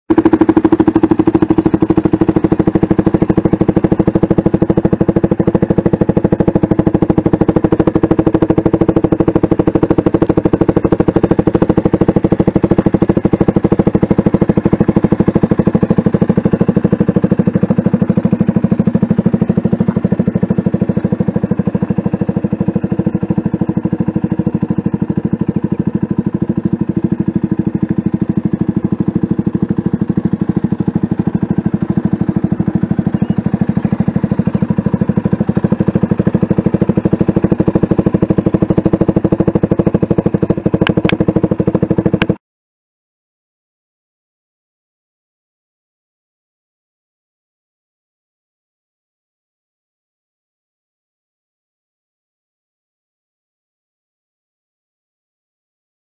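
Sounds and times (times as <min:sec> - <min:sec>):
motorcycle engine idling: 0:00.1 - 0:42.4.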